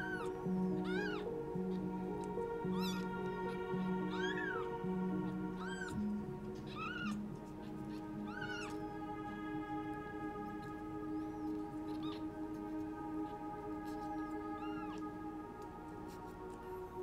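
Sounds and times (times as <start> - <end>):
background music with held notes: 0.0 - 17.0
kitten mewing: 4.2 - 4.6, 5.6 - 6.0, 6.7 - 7.1.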